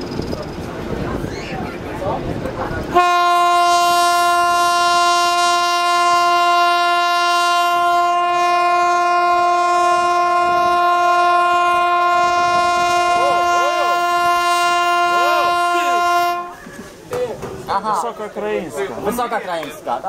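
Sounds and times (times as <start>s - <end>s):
locomotive horn long note: 2.9s - 16.6s.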